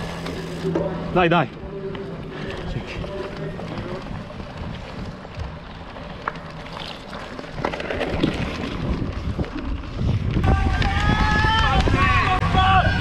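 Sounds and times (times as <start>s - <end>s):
bike knocks and rattles: 0.0s - 12.9s
wind noise on microphone: 7.8s - 13.0s.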